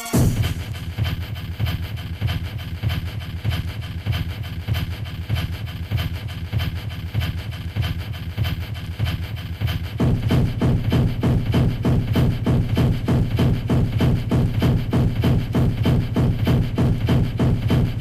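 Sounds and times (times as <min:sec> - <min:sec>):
distorted kick drums: 0:00.0 - 0:18.0
buzzing low drone: 0:10.0 - 0:18.0.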